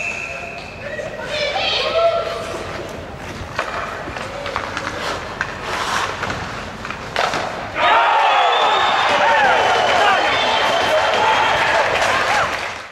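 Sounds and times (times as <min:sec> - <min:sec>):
skates scraping on ice: 0:02.4 - 0:07.8
stick and puck clicks: 0:02.9 - 0:07.7.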